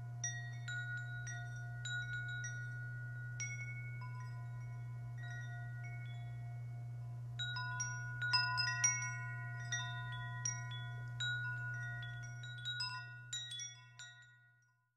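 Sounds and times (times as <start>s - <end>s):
steady low hum: 0.0s - 14.4s
wind chimes ringing: 0.0s - 14.9s.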